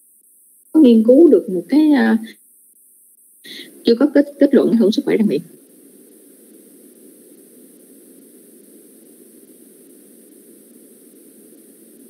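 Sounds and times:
steady hiss and static: 0.0s - 12.0s.

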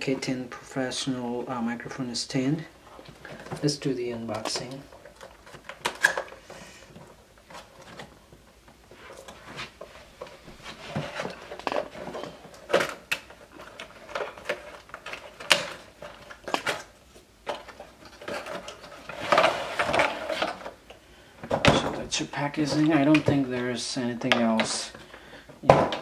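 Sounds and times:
cardboard rustling and scraping: 2.8s - 20.8s.

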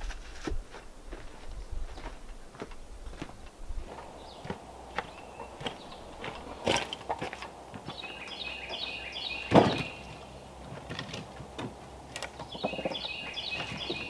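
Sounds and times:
bird singing: 3.8s - 14.0s.

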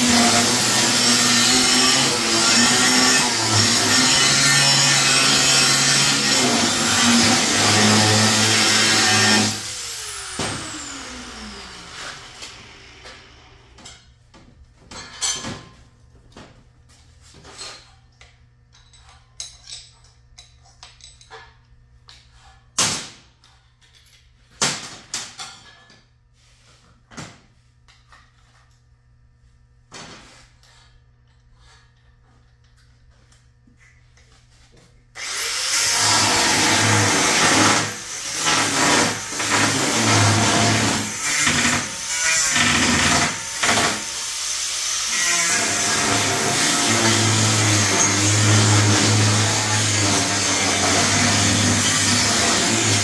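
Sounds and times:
power tool cutting metal: 0.0s - 13.4s, 35.2s - 53.0s.

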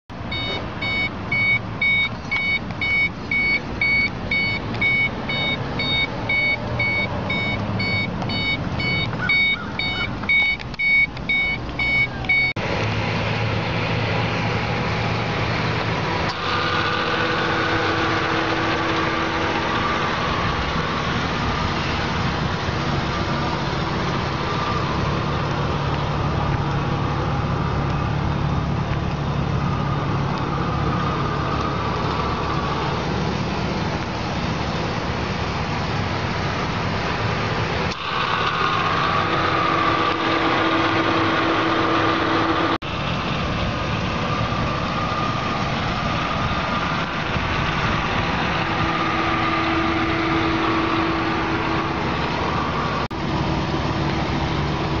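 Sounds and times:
car engine idling: 0.1s - 55.0s
car warning chime beeping: 0.3s - 12.6s.

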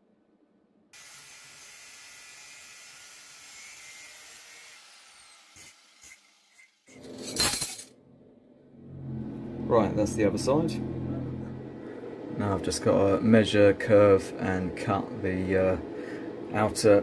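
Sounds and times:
angle grinder cutting metal: 1.0s - 7.0s.

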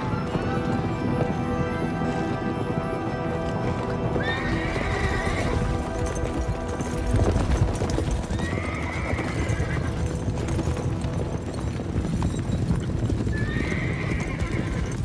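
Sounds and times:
film music: 0.0s - 15.0s
horses galloping on dirt: 0.0s - 15.0s
horse whinnying: 4.1s - 6.2s, 7.8s - 10.3s, 13.2s - 15.0s.

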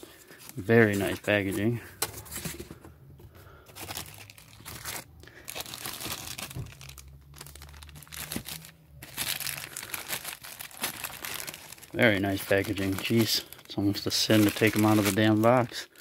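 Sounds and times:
plastic bag crinkling: 3.7s - 16.0s.

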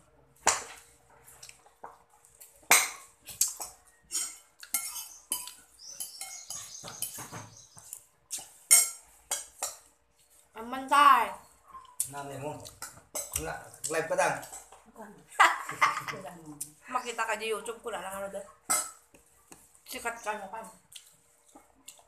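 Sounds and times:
metal spoon clinking on bowl: 4.1s - 7.2s, 8.4s - 9.9s.

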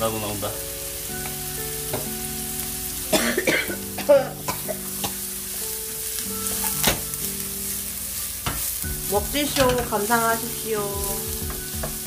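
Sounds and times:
vegetables sizzling in oil: 0.0s - 12.0s
person coughing: 3.1s - 4.8s.

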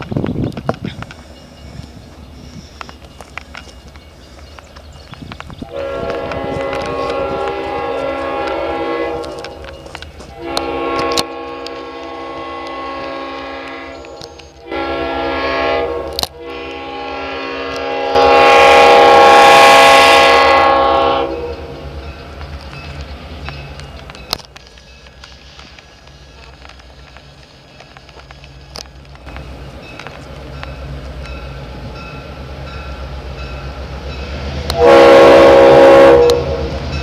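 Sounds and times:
diesel locomotive horn blasts: 5.6s - 9.6s, 10.3s - 21.8s, 34.7s - 36.8s.

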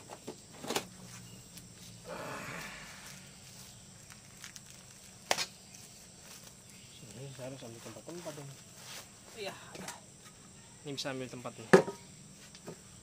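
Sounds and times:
plastic wrapping rustling: 3.0s - 9.1s.

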